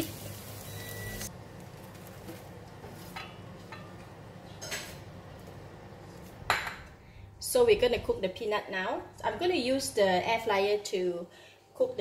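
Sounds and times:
hot oil sizzling: 0.0s - 1.3s.

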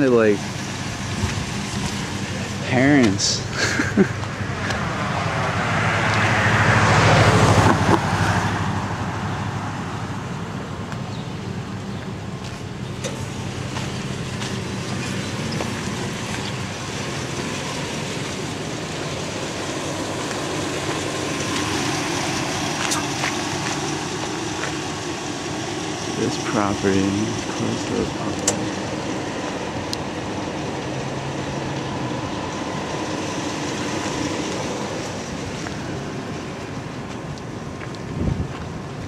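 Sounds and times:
vehicle passing: 0.0s - 10.4s
steady engine hum: 0.0s - 39.0s
traffic noise: 0.0s - 39.0s.

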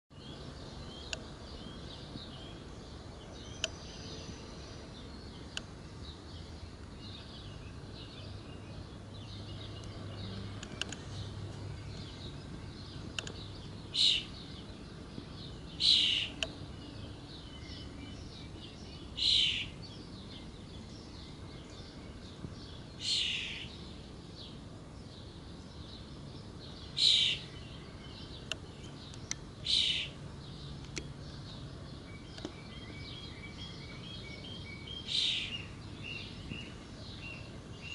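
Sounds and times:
birds chirping: 0.1s - 37.9s
loud noisy bird call: 13.9s - 14.6s, 15.8s - 16.5s, 19.1s - 19.8s, 22.9s - 23.9s, 26.8s - 28.2s, 29.6s - 30.3s, 32.5s - 37.9s.

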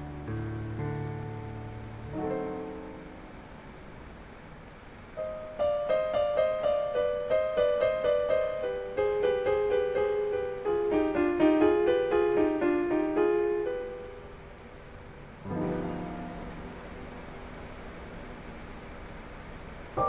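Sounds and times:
gentle piano melody: 0.0s - 20.0s.

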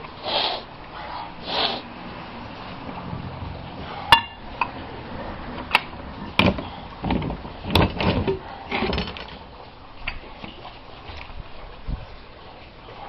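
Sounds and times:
sharp knocks and clattering: 5.5s - 9.4s.

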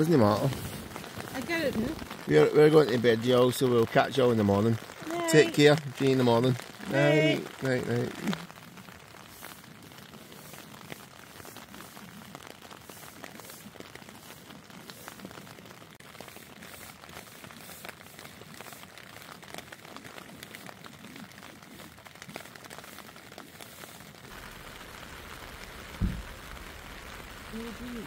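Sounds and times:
heavy rain on a tent: 0.0s - 28.0s.

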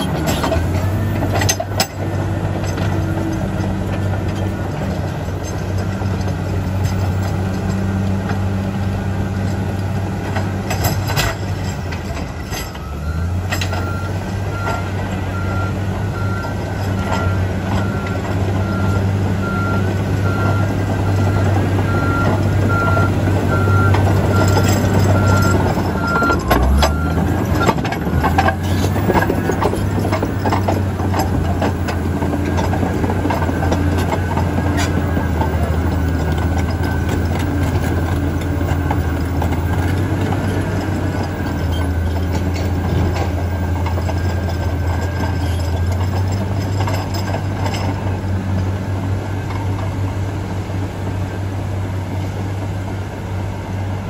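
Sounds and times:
tracks clanking over rock: 0.0s - 53.0s
bulldozer diesel engine running: 0.0s - 54.0s
reverse alarm beeping: 15.4s - 27.8s.

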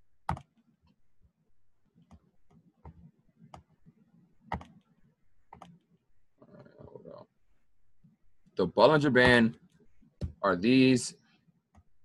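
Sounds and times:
computer mouse clicking: 4.5s - 4.8s, 5.5s - 5.8s.

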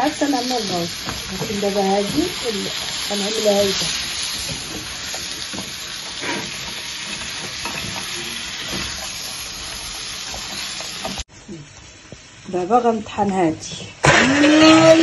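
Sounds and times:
food sizzling in oil: 0.0s - 15.0s
wooden spatula scraping pan: 0.5s - 11.2s.

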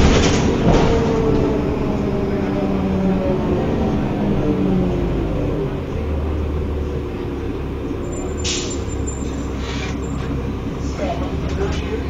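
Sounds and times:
diesel engine low rumble: 0.0s - 12.0s
brief air hiss: 9.6s - 10.0s.

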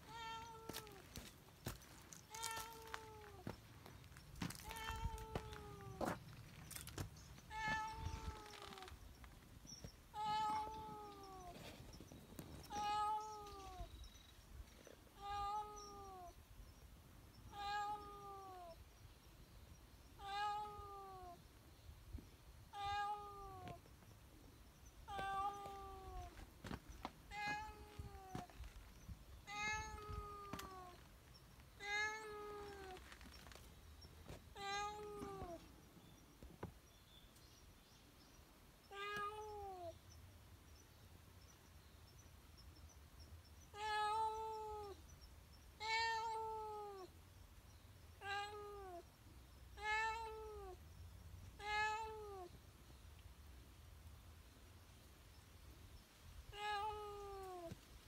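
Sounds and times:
cat meowing: 0.0s - 1.0s, 2.3s - 3.5s, 4.6s - 6.1s, 7.5s - 8.9s, 29.5s - 31.0s.

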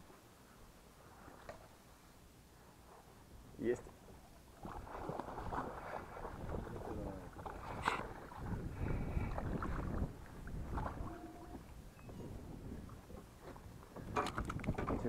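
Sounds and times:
wind buffeting microphone: 4.6s - 15.0s
rod and reel clicks: 14.1s - 15.0s.

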